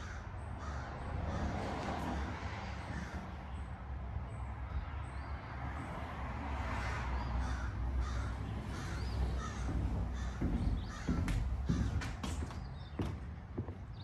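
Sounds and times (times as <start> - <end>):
crows cawing: 0.0 - 3.4, 6.8 - 12.4
sharp knocks: 8.0 - 13.8.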